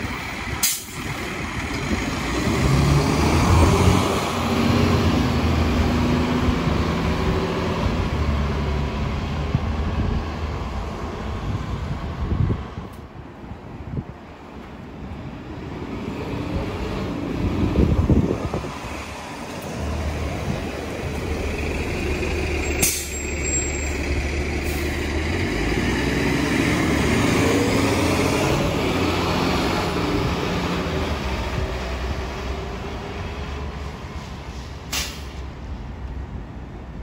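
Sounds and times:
bus engine: 0.0s - 37.0s
air brakes hissing: 22.7s - 23.9s, 34.4s - 35.4s.

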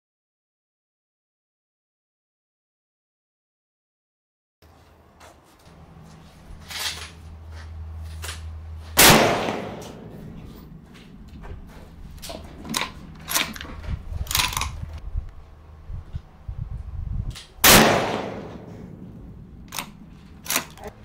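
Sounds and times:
rifle shot with echo: 9.0s - 10.7s, 17.6s - 20.6s
rifle bolt clicks: 12.2s - 14.8s, 19.7s - 20.9s.

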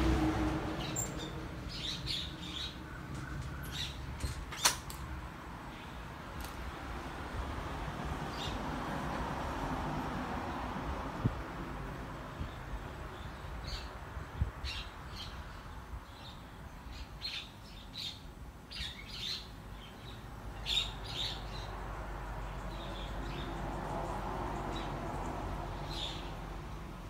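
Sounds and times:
small birds chirping: 0.8s - 4.8s, 12.4s - 21.8s, 22.4s - 26.8s.

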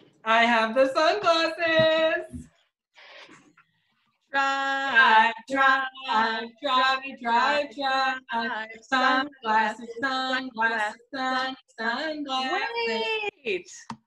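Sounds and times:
man and woman singing a chant: 4.4s - 12.4s.

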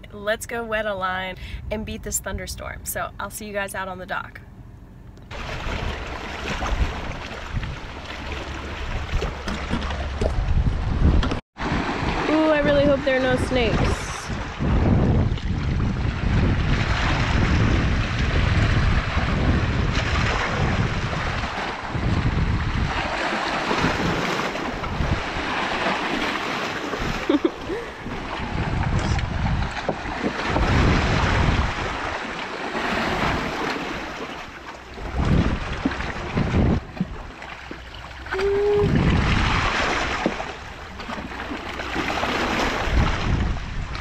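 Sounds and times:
wind buffeting microphone: 5.3s - 34.2s, 34.8s - 44.0s
water splashing against rocks: 28.0s - 44.0s.

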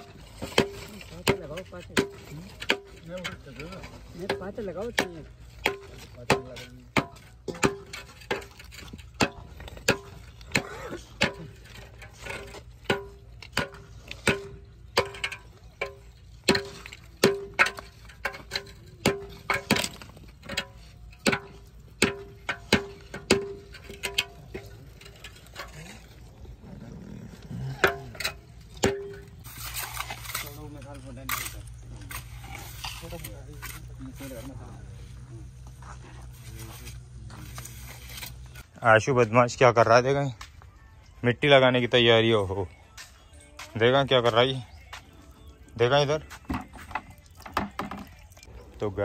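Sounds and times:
metal tool striking stone: 0.0s - 26.1s, 27.6s - 34.9s.

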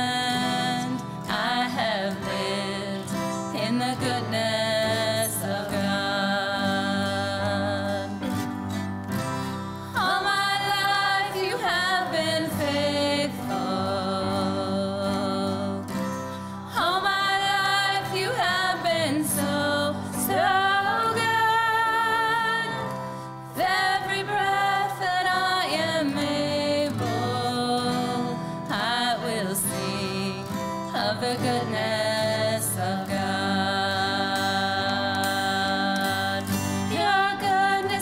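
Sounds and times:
acoustic guitar: 0.0s - 38.0s
women singing: 0.0s - 38.0s.

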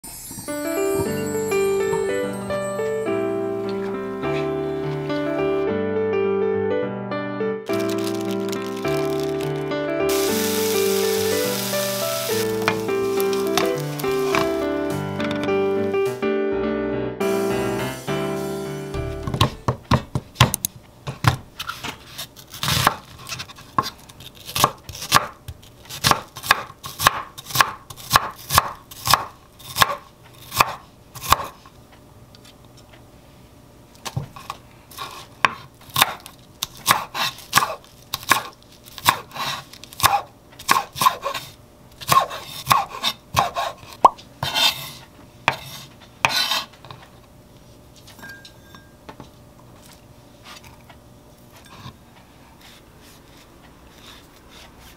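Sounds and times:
knife chopping on wooden board: 22.6s - 31.6s, 35.0s - 41.4s, 42.0s - 44.9s, 45.5s - 46.7s.

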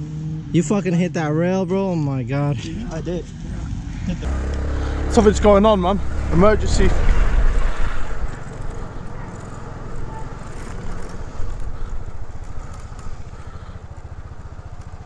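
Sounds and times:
motorcycle engine running: 3.3s - 15.0s.

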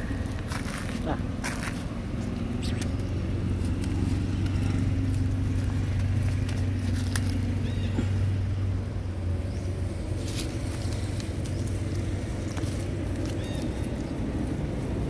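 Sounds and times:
low mechanical hum: 0.0s - 15.0s
crackles in leaf litter: 3.5s - 7.9s, 9.7s - 15.0s.

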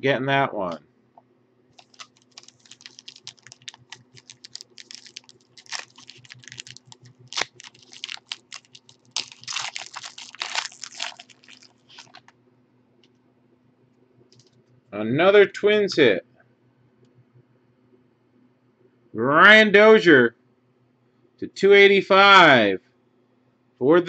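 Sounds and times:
faint steady hum: 0.0s - 24.0s
foil pack crinkling: 1.8s - 12.3s.

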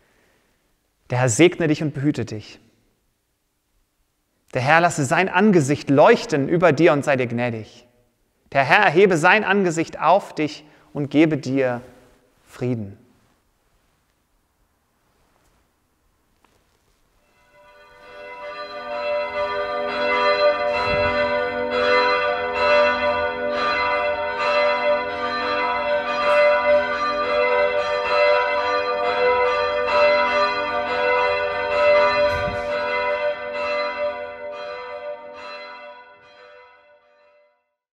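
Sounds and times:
church bells ringing: 8.6s - 11.6s, 17.2s - 37.6s.

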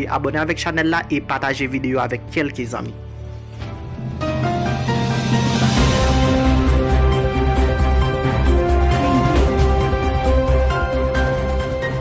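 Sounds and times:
synth music with pulsing bass: 3.2s - 12.0s.

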